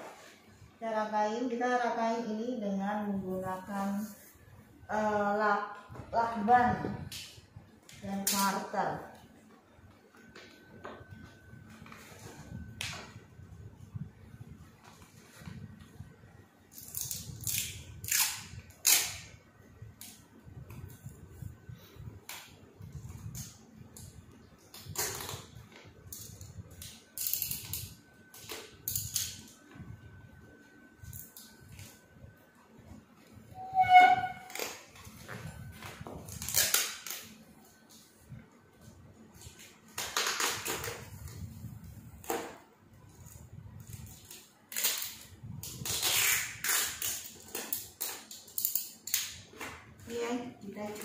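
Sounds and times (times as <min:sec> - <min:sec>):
adhesive tape ripping off roll: 0:16.7 - 0:19.4, 0:24.7 - 0:25.5, 0:36.2 - 0:37.4, 0:43.9 - 0:49.6
packing tape pulled off roll: 0:16.7 - 0:19.4, 0:20.0 - 0:29.8, 0:33.6 - 0:38.1, 0:39.4 - 0:49.8.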